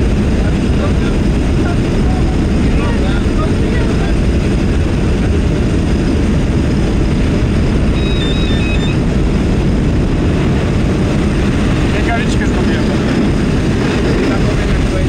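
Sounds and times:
propeller engine drone: 0:00.0 - 0:15.0
faint high electronic beeps: 0:08.0 - 0:09.0.

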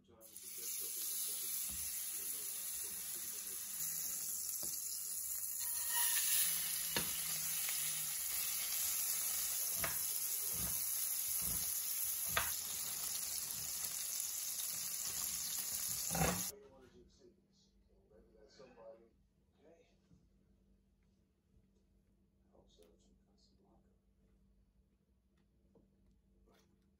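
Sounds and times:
burger patty sizzling in oil: 0:00.2 - 0:16.5
spatula knocking on pan: 0:09.6 - 0:12.8.

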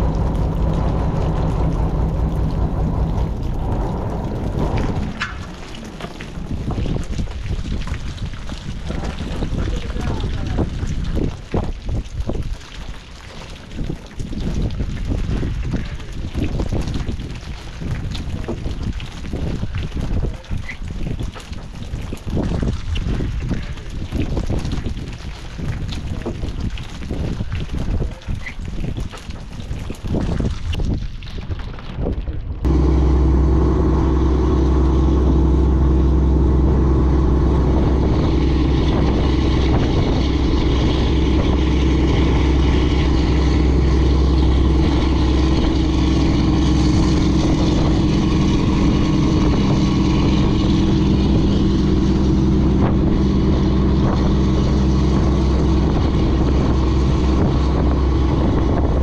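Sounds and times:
boat engine droning: 0:00.0 - 0:11.3, 0:32.6 - 0:59.0
wind noise on microphone: 0:00.0 - 0:59.0.

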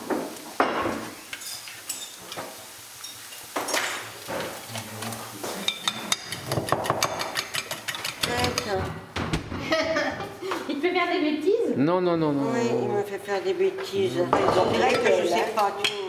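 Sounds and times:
beating eggs in bowl: 0:04.7 - 0:08.8.

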